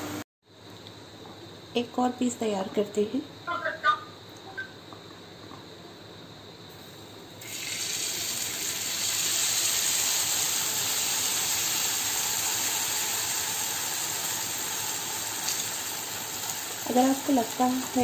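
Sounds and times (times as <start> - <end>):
batter sizzling in hot oil: 6.8 - 18.0.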